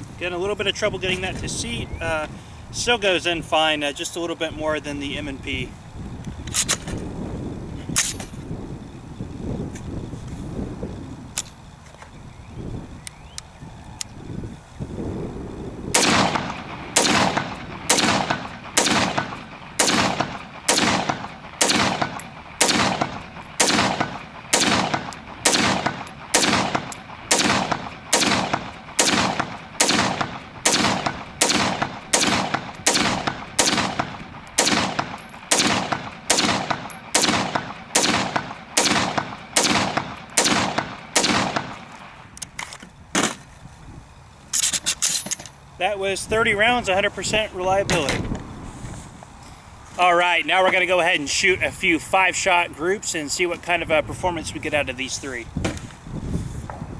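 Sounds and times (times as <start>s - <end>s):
rifle shots: 15.9s - 42.2s.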